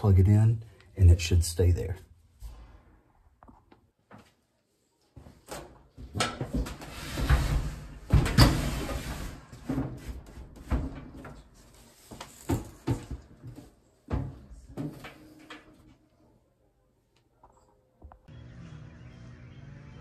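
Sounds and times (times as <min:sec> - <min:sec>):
clothes dryer knocking and scraping: 0:06.0 - 0:11.4.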